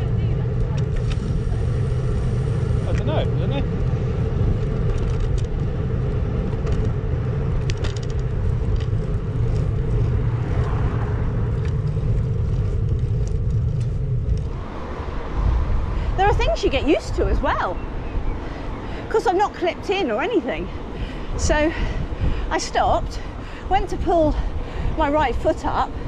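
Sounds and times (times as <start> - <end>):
bicycle road rumble: 0.0 - 26.0
wind rush: 0.0 - 26.0.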